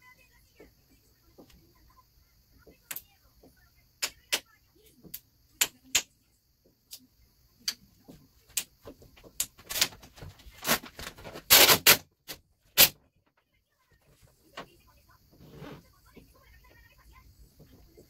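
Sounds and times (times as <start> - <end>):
vinyl film crackling and snapping: 9.4 - 13.0.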